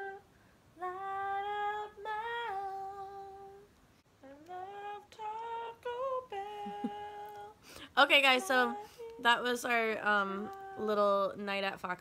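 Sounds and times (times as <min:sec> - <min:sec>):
woman humming: 0:06.4 - 0:07.5.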